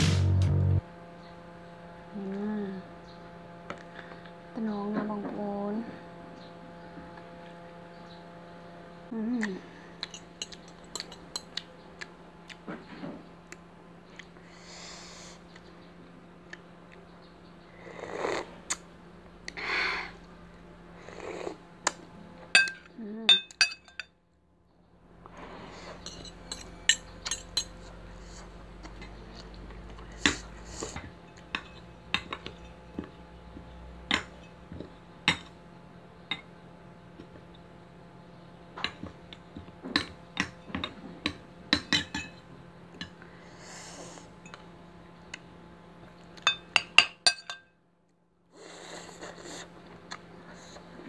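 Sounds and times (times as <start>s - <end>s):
cutlery clinking on ceramic bowls: 10.0s - 11.6s, 22.6s - 24.2s, 26.0s - 27.9s, 40.0s - 42.4s, 46.4s - 47.7s.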